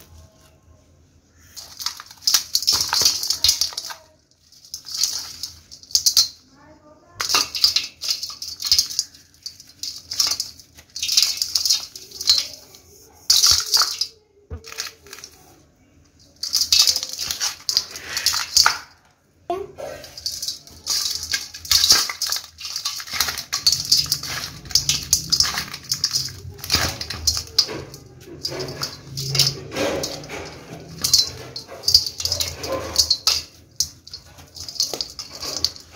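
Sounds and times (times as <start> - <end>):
powder pattering onto metal: 1.3 - 19.1, 19.8 - 35.9.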